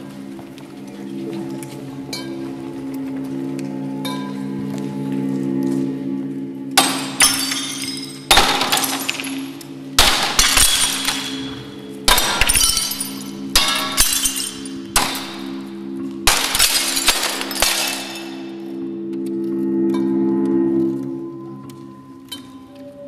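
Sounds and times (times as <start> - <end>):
glass cracking: 6.8 - 11.4, 12.1 - 15.6, 16.3 - 18.5
glass tinkling and crackling: 6.8 - 15.6, 16.3 - 18.5.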